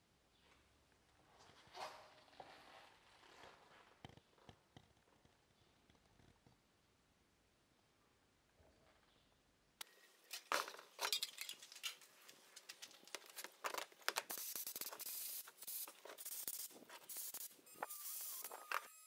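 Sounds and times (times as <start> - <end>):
air blow gun hissing: 14.3 - 18.7
rotary tool whine: 17.0 - 19.0.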